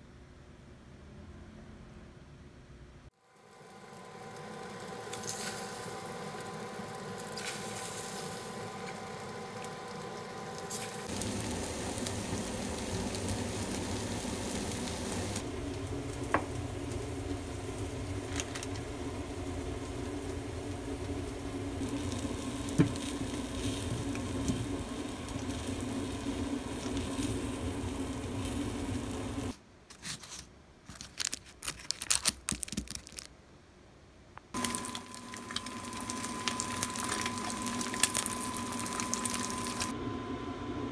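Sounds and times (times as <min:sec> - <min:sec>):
food sizzling in a frying pan: 0:03.2 - 0:29.6, 0:34.6 - 0:39.9.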